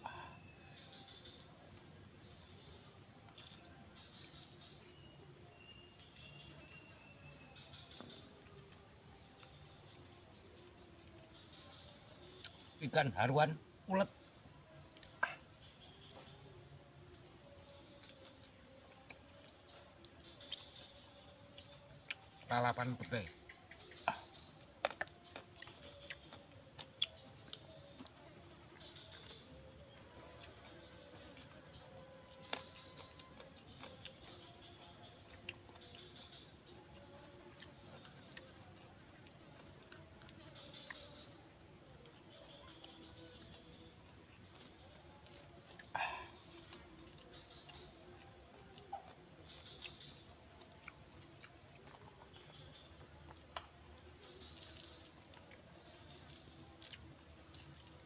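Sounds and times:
crickets chirping: 0.0 - 58.0.

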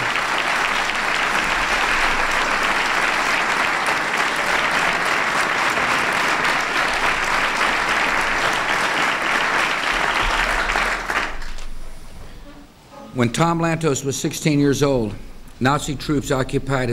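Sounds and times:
audience applauding: 0.0 - 12.2.

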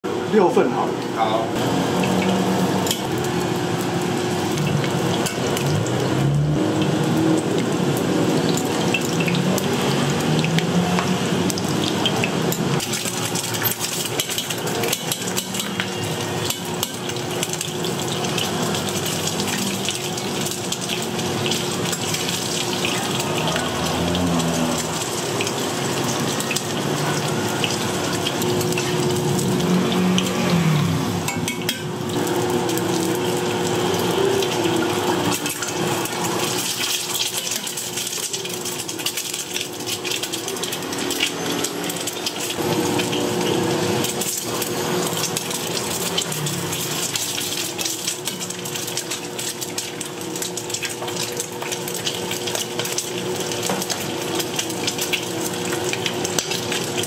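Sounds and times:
hissing and splashing cooking: 0.0 - 57.0
cookware clinking: 31.3 - 31.9.

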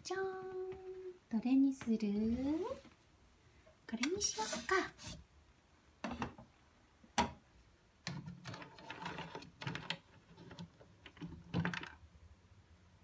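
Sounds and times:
toy ladle rattling balls in pot: 8.1 - 12.0.

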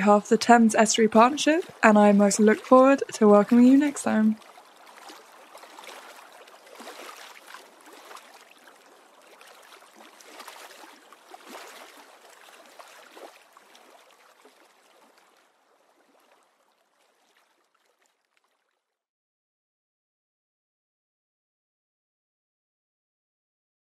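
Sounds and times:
running water splashing and gurgling: 0.0 - 19.0.

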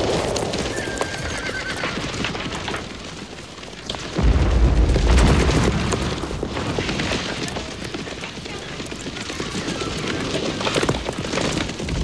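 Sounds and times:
rumbling explosions: 0.0 - 12.0
heavy explosion with deep rumble: 4.1 - 7.8.

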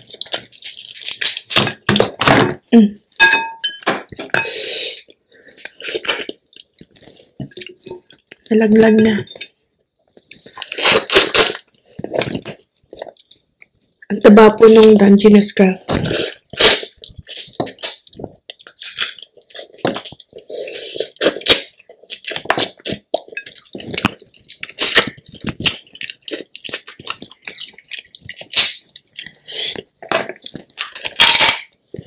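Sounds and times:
chewing and slurping: 15.9 - 32.0.

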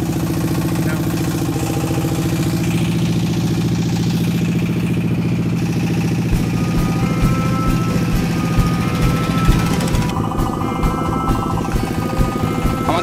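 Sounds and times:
diesel boat engine chugging: 0.0 - 13.0
low thumps: 5.8 - 13.0.

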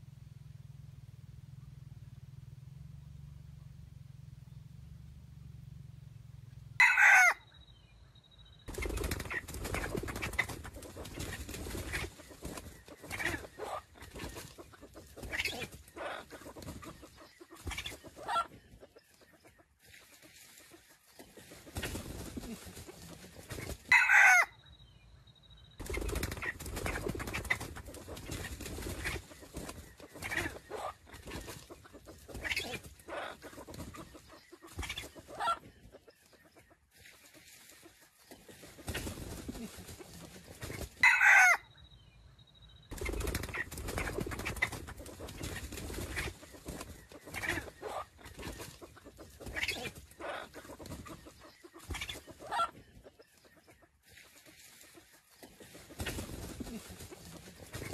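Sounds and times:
roosters clucking: 5.4 - 57.9
rooster crowing: 6.8 - 7.5, 23.9 - 24.6, 41.0 - 41.7.

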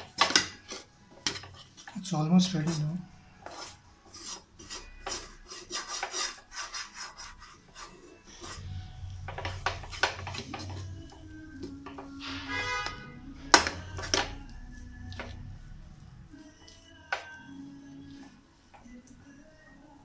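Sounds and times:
plastic utensil scraping pan: 0.0 - 14.4
low hum: 8.4 - 16.6.

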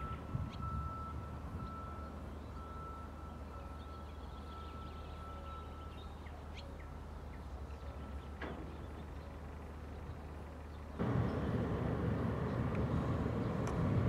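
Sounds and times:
birds chirping: 0.0 - 14.0
steady low rumble: 9.0 - 14.0.

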